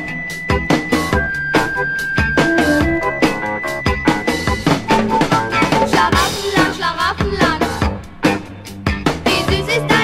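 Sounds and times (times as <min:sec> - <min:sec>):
pop song with drums and bass: 0:00.0 - 0:10.0
drum hit: 0:02.4 - 0:06.8.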